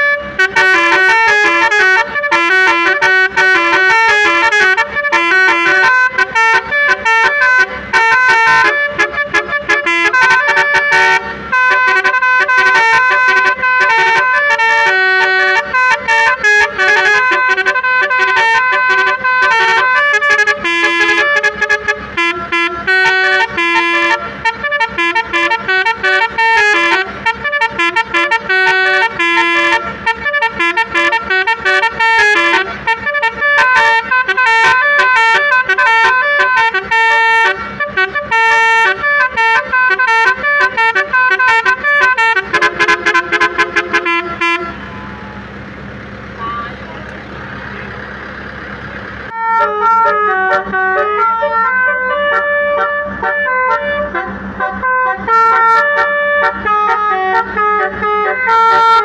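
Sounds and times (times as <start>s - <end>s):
musical air horn playing a tune: 0.0s - 45.5s, 49.3s - 59.0s.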